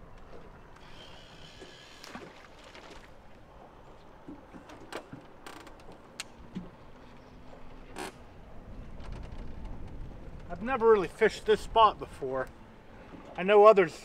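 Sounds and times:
fishing line whirring off reel: 0:00.8 - 0:02.8
low wind rumble: 0:06.0 - 0:13.5.

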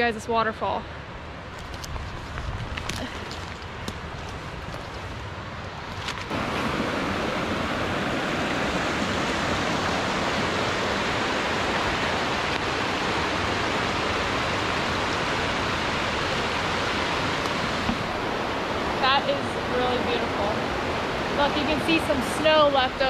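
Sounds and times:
small waterfall rushing: 0:06.3 - 0:23.0.

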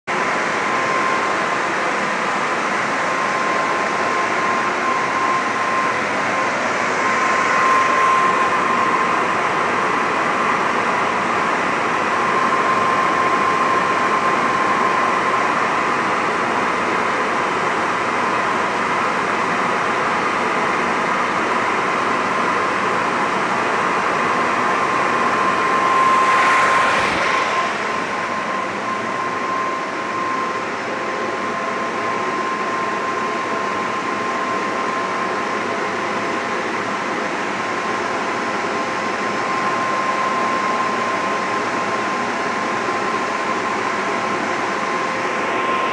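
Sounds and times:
motor whirring with high whine: 0:00.1 - 0:36.3.

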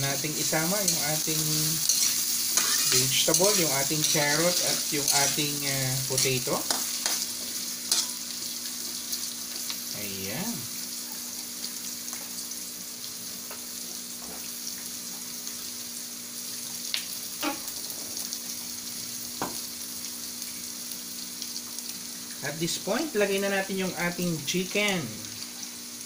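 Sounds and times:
vegetables sizzling in hot oil: 0:00.0 - 0:26.0.

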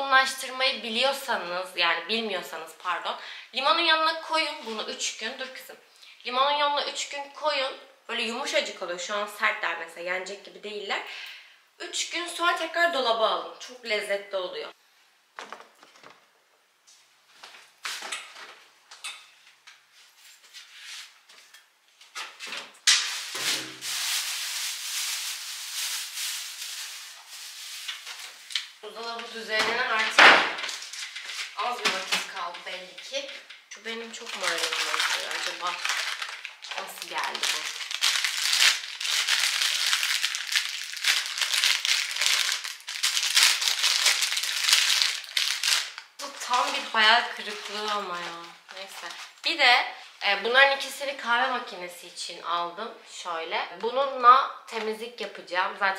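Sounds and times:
plastic bag crinkling: 0:23.0 - 0:50.0.

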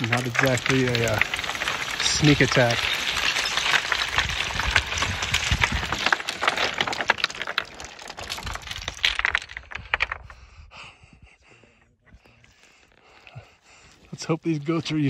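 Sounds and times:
boots scrambling on loose rocks: 0:00.0 - 0:10.3
rocks clattering and sliding: 0:00.0 - 0:10.7, 0:12.1 - 0:15.0.

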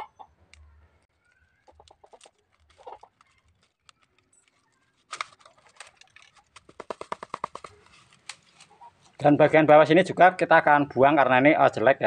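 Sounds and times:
plastic crackling: 0:00.5 - 0:09.2.

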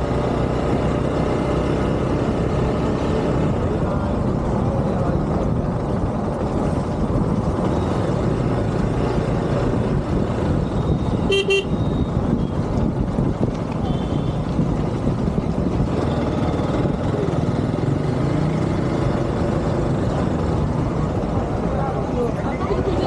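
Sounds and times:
motorcycle engine rumble: 0:00.0 - 0:23.0
wind noise: 0:09.2 - 0:17.0
vehicle horn toots: 0:11.2 - 0:11.8.

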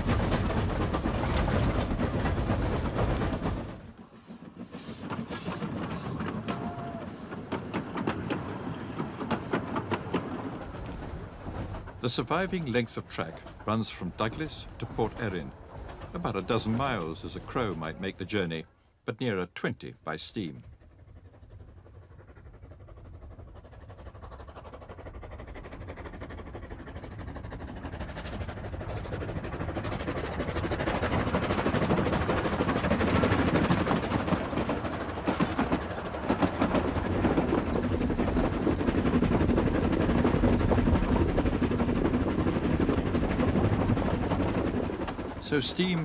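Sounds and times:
steam locomotive exhaust beat: 0:00.0 - 0:10.0.

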